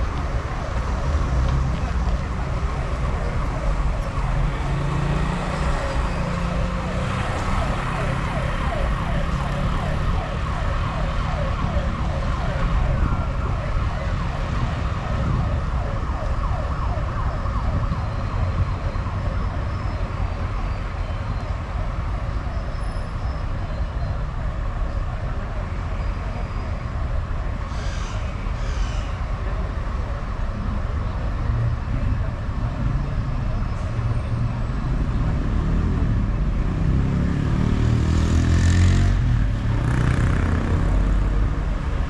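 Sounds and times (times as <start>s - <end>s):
car engine and tyre noise: 0.0s - 42.0s
siren yelping: 2.1s - 20.8s.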